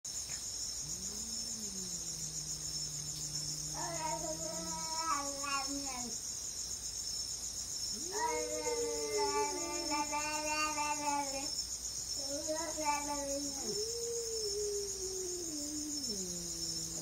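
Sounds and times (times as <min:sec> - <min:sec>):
crickets chirping: 0:00.0 - 0:17.0
cat low growl: 0:00.8 - 0:06.1, 0:08.0 - 0:09.9, 0:13.2 - 0:17.0.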